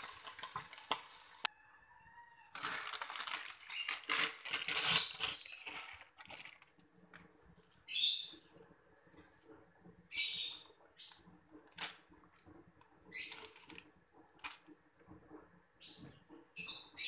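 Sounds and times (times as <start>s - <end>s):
noodles sizzling in hot pan: 0.0s - 1.5s
plastic packet crinkling: 2.5s - 7.2s.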